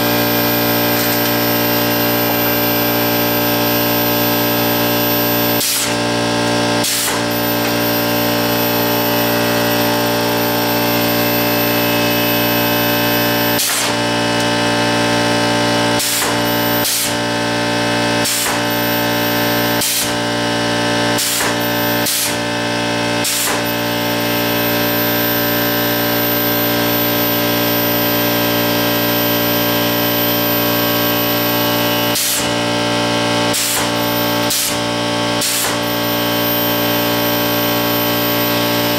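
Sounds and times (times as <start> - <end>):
air compressor running: 0.0 - 38.9
can crusher air bursts: 4.5 - 20.3, 21.1 - 23.9, 31.9 - 38.9.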